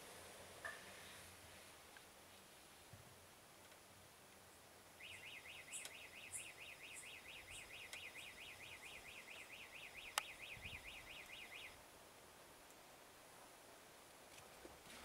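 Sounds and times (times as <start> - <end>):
electronic reversing alarm warble: 5.0 - 11.8.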